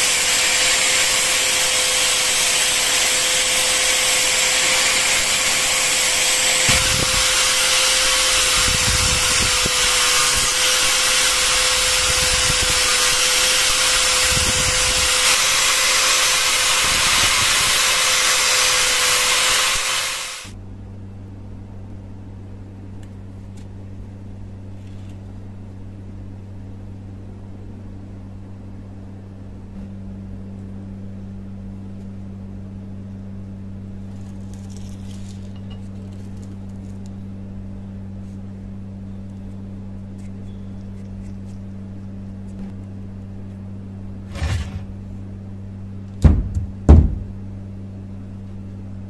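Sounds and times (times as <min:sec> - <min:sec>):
angle grinder grinding: 0:00.0 - 0:20.5
low electrical hum: 0:00.0 - 0:49.0.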